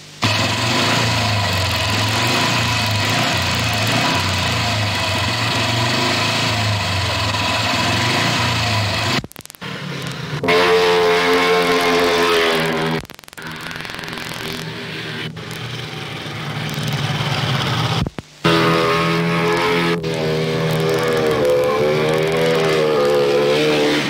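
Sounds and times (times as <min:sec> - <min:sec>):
higher-pitched sound: 0:10.4 - 0:24.0.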